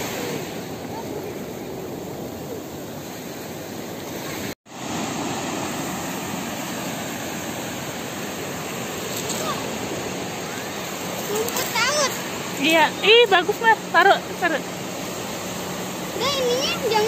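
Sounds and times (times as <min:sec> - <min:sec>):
sea surf breaking: 0:00.0 - 0:17.0.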